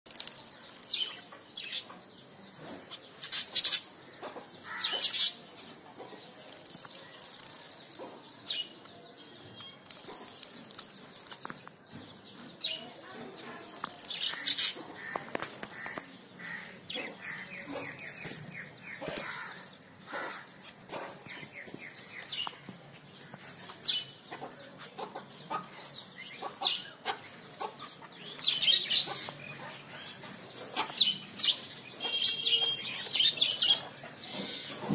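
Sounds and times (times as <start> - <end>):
bird splashing in water: 0.1 - 1.1
small birds chirping: 0.1 - 34.9.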